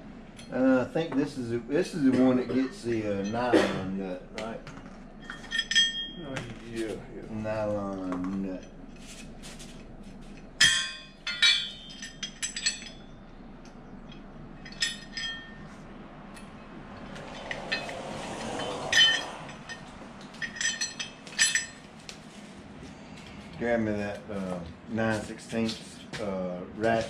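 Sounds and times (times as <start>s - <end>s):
steel parts clinking: 5.2s - 6.2s, 8.5s - 22.2s
scraping rustle: 8.5s - 10.6s, 17.0s - 23.6s.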